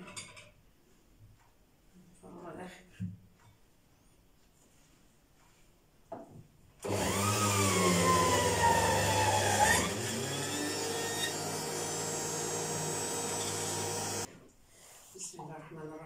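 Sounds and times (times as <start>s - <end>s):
juicer motor whining: 6.8s - 14.3s.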